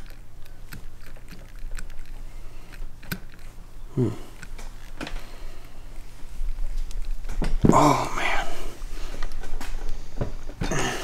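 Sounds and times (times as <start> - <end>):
tools clicking and knocking: 0.0 - 3.6
steady low hum: 0.0 - 11.0.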